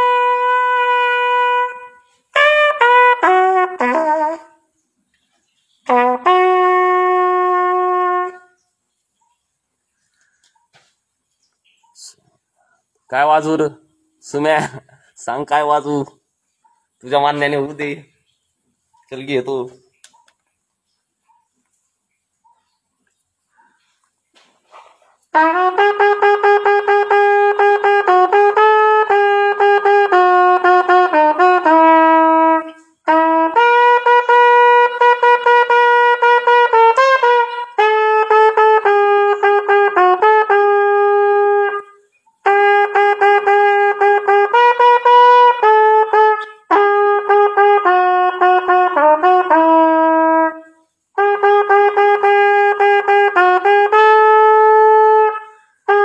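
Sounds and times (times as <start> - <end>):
solo trumpet melody: 0.0 - 10.6, 24.7 - 56.0.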